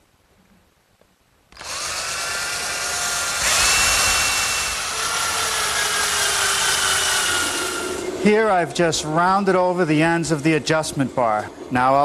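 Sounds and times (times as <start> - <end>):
drill driving a screw: 1.5 - 8.1
electric drill whining: 1.5 - 8.2.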